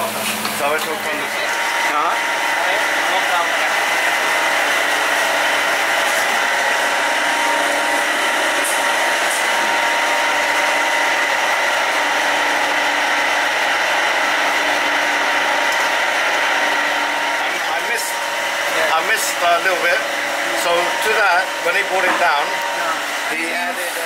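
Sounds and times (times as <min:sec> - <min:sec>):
kitchen ventilation whirring: 0:00.0 - 0:24.0.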